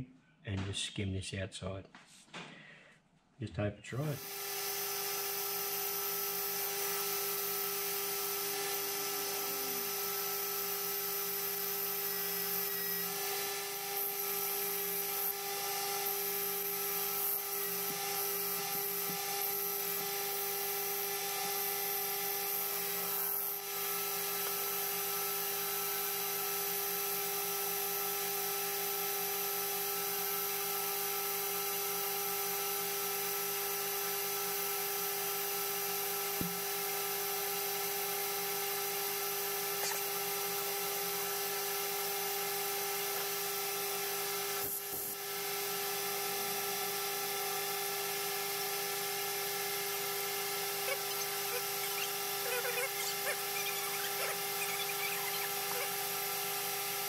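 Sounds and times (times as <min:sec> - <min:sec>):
metal lathe whining: 0:04.2 - 0:23.3, 0:49.4 - 0:57.0.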